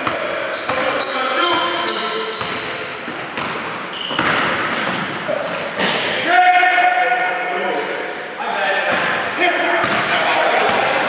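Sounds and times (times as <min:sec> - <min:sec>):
shoe squeaks: 0:00.0 - 0:06.4, 0:07.6 - 0:08.6
echoing voices: 0:00.0 - 0:11.0
basketball bouncing on hardwood floor: 0:02.4 - 0:05.0, 0:09.8 - 0:10.1.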